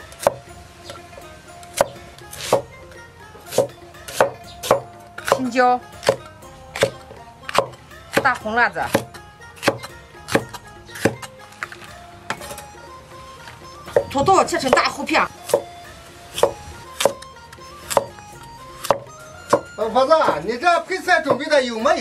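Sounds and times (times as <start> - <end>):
cleaver chopping on wooden block: 0.1 - 0.4, 1.7 - 2.7, 3.5 - 12.6, 13.9 - 15.7, 16.3 - 18.2, 18.8 - 20.4, 21.2 - 21.5.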